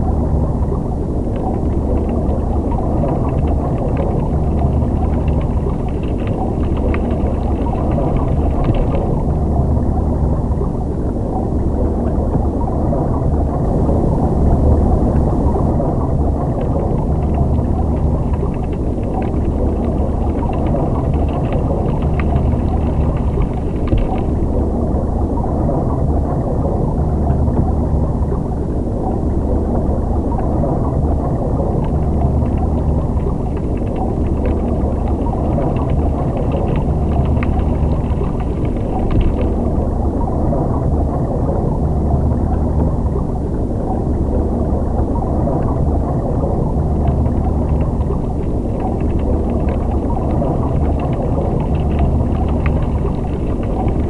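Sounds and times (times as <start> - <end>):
low underwater rumble: 0.0 - 54.0.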